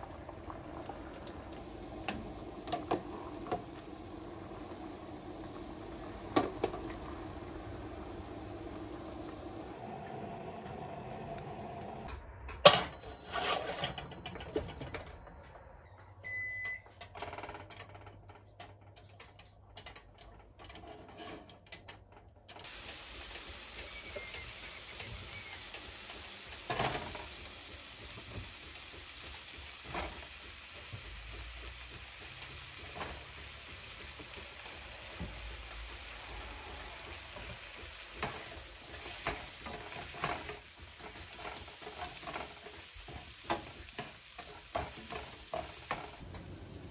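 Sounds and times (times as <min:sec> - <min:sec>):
fat sizzling in frying pan: 0:00.0 - 0:09.8, 0:22.6 - 0:46.9
stirring in hot pan: 0:22.7 - 0:46.8.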